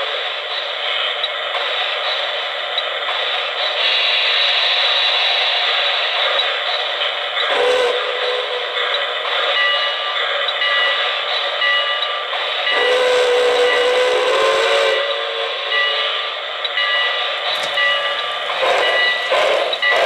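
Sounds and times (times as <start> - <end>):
electronic steam engine sound: 0.0 - 20.0
model train running on track: 0.0 - 20.0
deep train whistle: 7.5 - 8.8, 12.7 - 16.2, 18.6 - 20.0.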